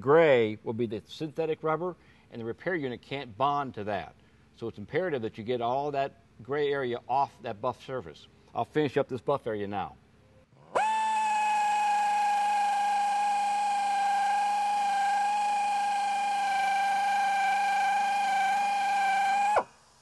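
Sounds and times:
tire buffer whining: 10.7 - 19.7.

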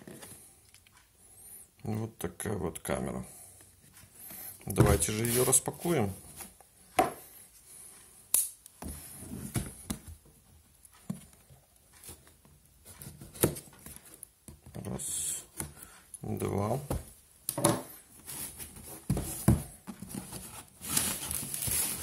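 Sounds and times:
cardboard rustling: 4.0 - 6.6, 17.9 - 22.0
taps and knocks on cardboard box: 19.0 - 20.2.

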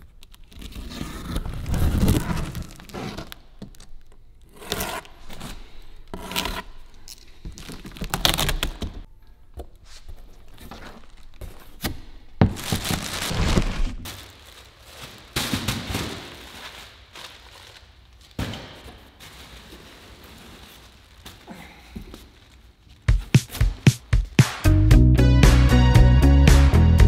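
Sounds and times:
plastic wrapping crinkling: 12.4 - 18.4, 19.0 - 23.1.

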